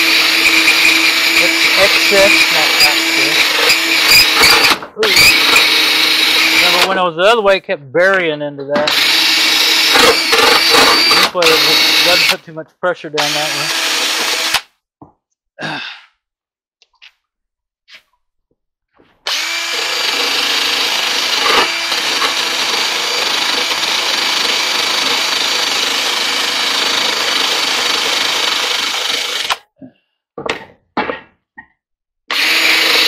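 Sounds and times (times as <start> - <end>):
cordless drill scrubbing sheet metal: 0.0 - 7.1, 8.8 - 12.4, 13.2 - 14.7, 19.2 - 29.6, 32.3 - 33.0.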